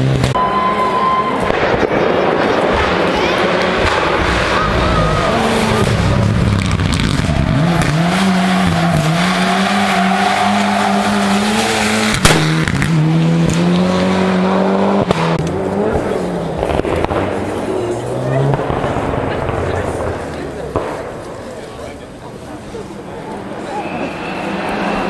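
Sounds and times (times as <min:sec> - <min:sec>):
car engine revving hard: 0:02.5 - 0:20.8.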